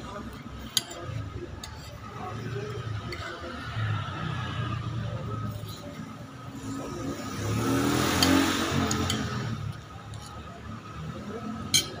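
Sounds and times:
motor vehicle passing: 0:06.4 - 0:10.0
cutlery clinking on plate: 0:11.7 - 0:12.0.

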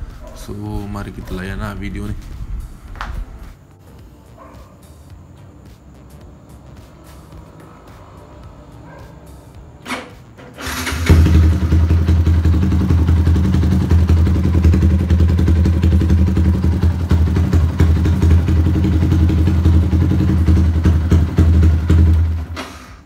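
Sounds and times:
motorcycle engine starting and idling: 0:07.4 - 0:23.0.

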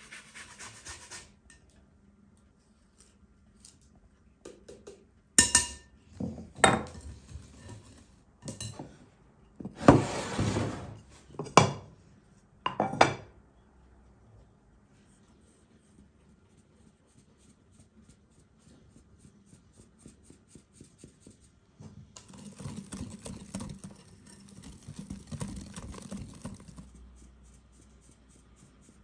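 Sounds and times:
scraping rustle: 0:22.2 - 0:27.3.

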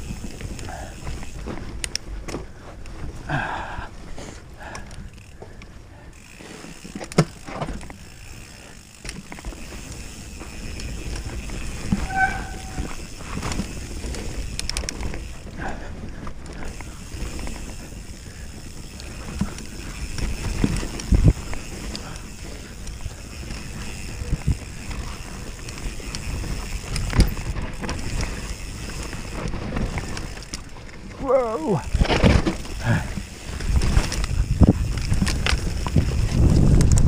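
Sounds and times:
bike rattling and clattering: 0:00.0 - 0:37.0
bike tyres rumbling over dirt: 0:00.0 - 0:37.0
short squeak: 0:11.9 - 0:13.0
wind on camera: 0:19.0 - 0:22.2, 0:31.7 - 0:37.0.

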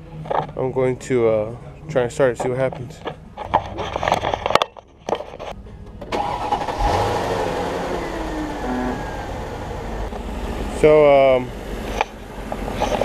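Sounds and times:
car engine starting and idling: 0:05.5 - 0:13.0.

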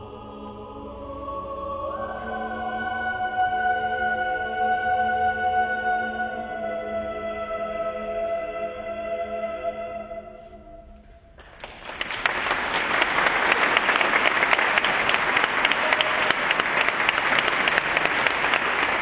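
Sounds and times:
choir singing chord: 0:00.0 - 0:11.0
audience applauding: 0:11.4 - 0:19.0.

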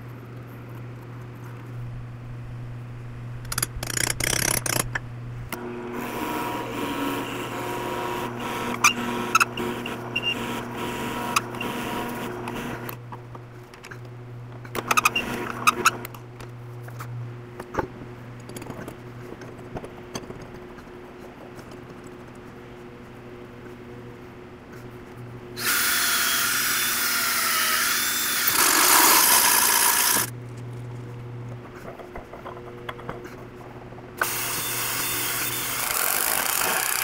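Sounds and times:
drill press boring into wood: 0:05.6 - 0:13.0, 0:14.8 - 0:16.2, 0:25.6 - 0:30.3, 0:34.2 - 0:37.0.

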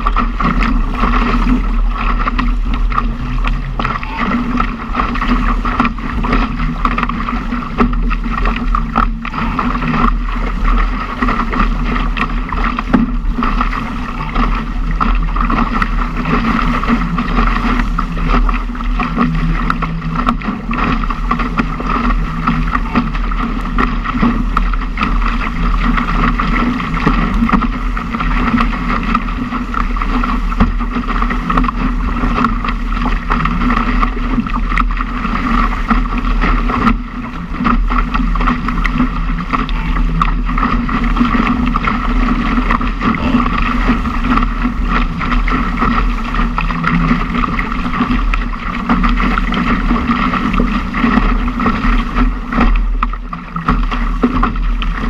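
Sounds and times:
water rushing along hull: 0:00.0 - 0:55.0
wind buffeting microphone: 0:00.0 - 0:55.0.

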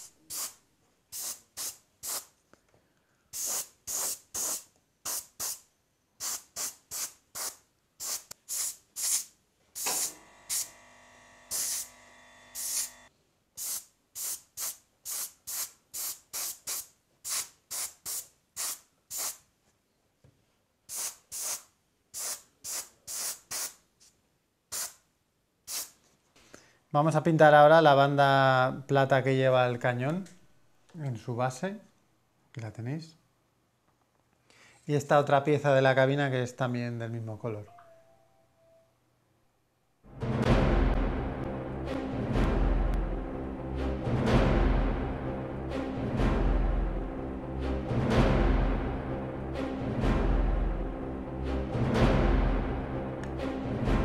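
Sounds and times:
airbrush spraying bursts: 0:00.0 - 0:02.4, 0:03.3 - 0:10.7, 0:11.5 - 0:11.9, 0:12.5 - 0:13.0, 0:13.6 - 0:19.5, 0:20.9 - 0:23.8, 0:24.7 - 0:25.0, 0:25.7 - 0:26.0
steady hum: 0:09.9 - 0:13.1.

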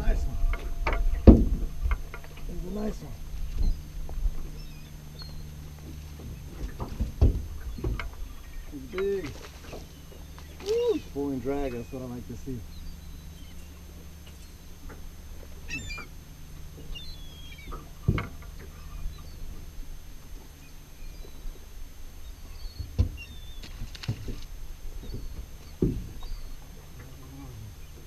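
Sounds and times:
knocks on metal boat deck: 0:00.0 - 0:02.4, 0:25.0 - 0:26.3
steady low hum: 0:00.0 - 0:28.0.

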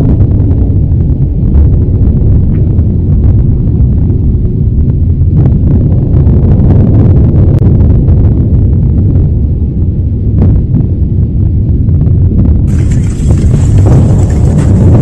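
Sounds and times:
deep noisy roar: 0:00.0 - 0:15.0
faint crackles: 0:12.7 - 0:15.0.

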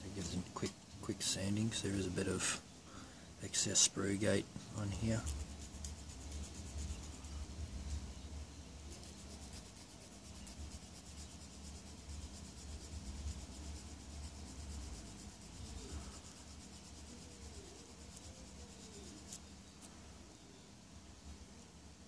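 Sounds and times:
low steady hum: 0:00.0 - 0:22.0
sanding stick rubbing plastic: 0:04.9 - 0:07.3, 0:08.9 - 0:19.4.

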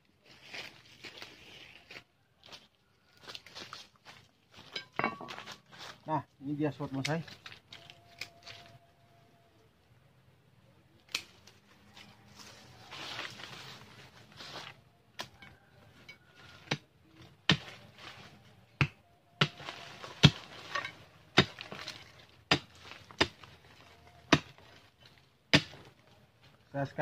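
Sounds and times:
dry leaves rustling: 0:00.3 - 0:06.0, 0:11.6 - 0:14.8, 0:19.5 - 0:25.1
digging bar striking stony soil: 0:16.1 - 0:26.0.

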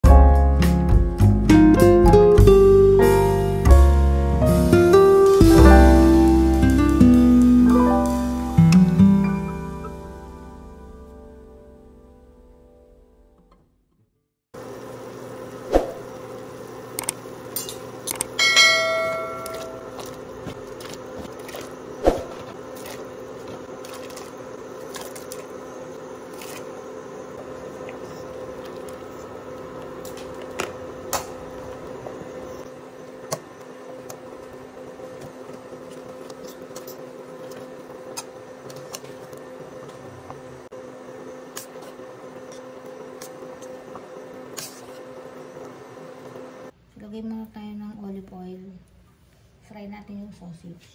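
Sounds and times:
steady hum: 0:02.4 - 0:13.4, 0:14.6 - 0:49.0
metal spoon ringing on pot: 0:18.4 - 0:19.9
water boiling in pot: 0:19.5 - 0:46.7.

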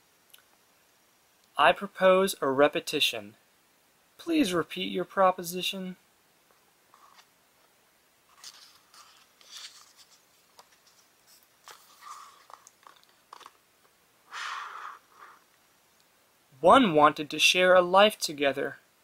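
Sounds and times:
book pages rustling: 0:06.9 - 0:13.6.

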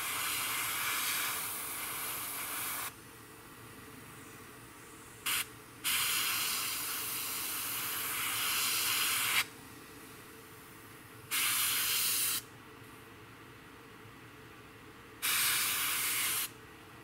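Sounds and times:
airbrush spraying paint: 0:00.0 - 0:02.9, 0:05.2 - 0:09.5, 0:11.3 - 0:12.5, 0:15.2 - 0:16.6.

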